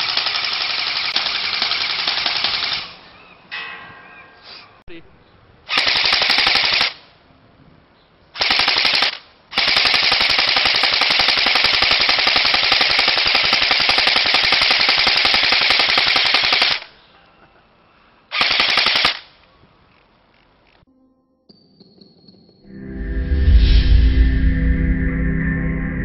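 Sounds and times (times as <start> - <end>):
airsoft rifle firing bursts: 0.0 - 3.0, 5.7 - 7.0, 8.4 - 16.9, 18.3 - 19.3.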